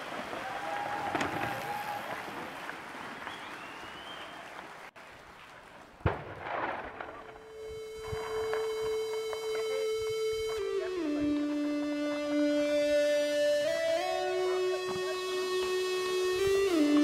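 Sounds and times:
held musical note: 7.4s - 17.0s.

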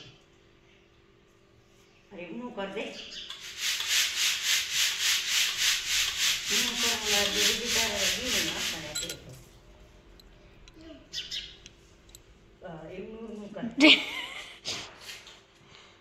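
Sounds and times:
grain swishing in a sieve: 3.4s - 9.0s.

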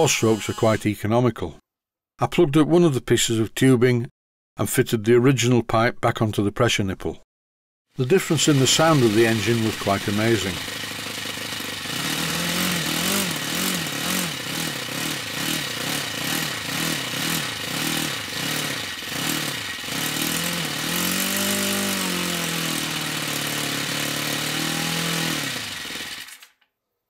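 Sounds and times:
model aircraft engine running: 8.0s - 26.6s.

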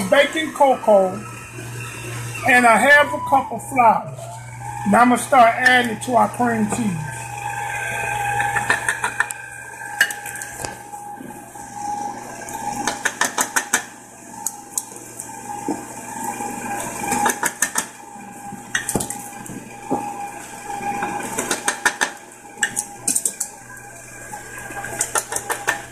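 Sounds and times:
electric stand mixer running: 0.0s - 25.9s.

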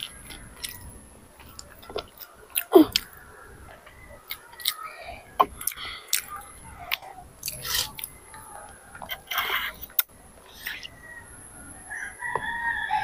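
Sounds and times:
child chewing noodles: 0.0s - 3.2s, 3.8s - 10.9s.

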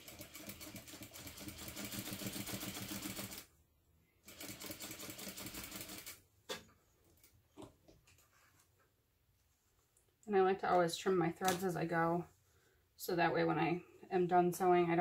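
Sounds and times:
sewing machine running: 0.0s - 3.5s, 4.2s - 6.2s.

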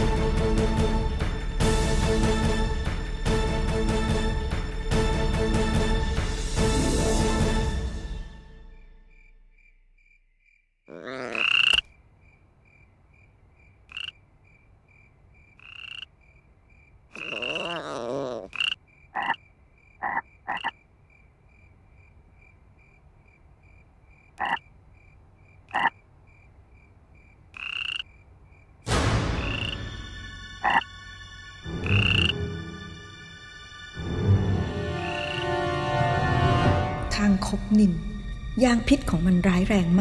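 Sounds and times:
music: 0.0s - 9.5s, 28.9s - 40.0s
toad croaking: 10.9s - 13.0s, 13.6s - 28.8s, 29.4s - 30.0s, 30.6s - 30.9s, 31.8s - 32.6s, 35.0s - 35.6s.

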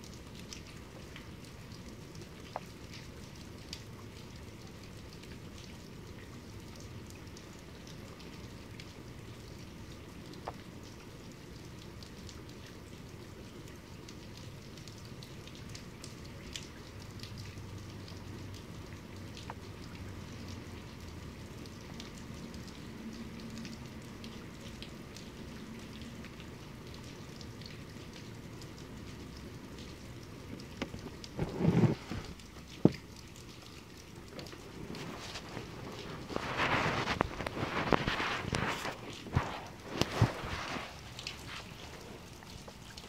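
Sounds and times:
heavy rain falling: 0.0s - 43.0s
rain drop ticks: 0.0s - 43.0s.

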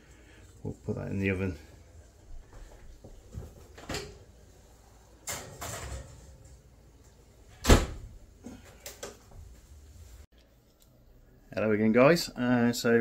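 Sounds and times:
oven door shutting thud: 7.6s - 8.1s.

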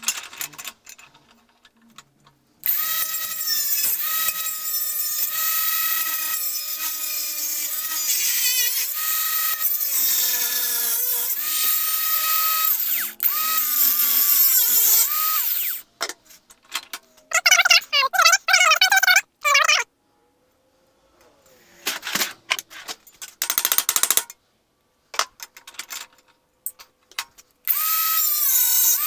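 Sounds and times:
angle grinder cutting metal: 2.6s - 15.8s, 27.7s - 29.0s.

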